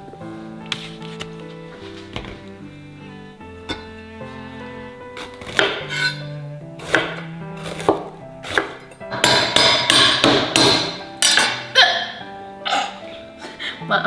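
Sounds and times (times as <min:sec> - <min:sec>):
soft background music: 0:00.0 - 0:14.0
knife chopping on wooden board: 0:05.2 - 0:06.2, 0:06.8 - 0:11.5.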